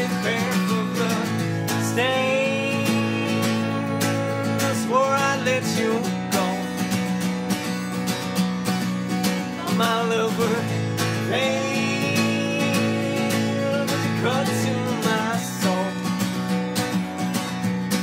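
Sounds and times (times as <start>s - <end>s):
acoustic guitar strumming: 0.0s - 18.0s
people singing: 1.9s - 6.6s, 9.6s - 16.0s.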